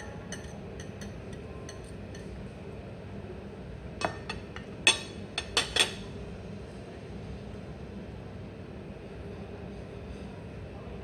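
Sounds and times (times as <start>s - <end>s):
knife and fork clinking on plate: 0.0s - 2.3s, 4.0s - 6.0s.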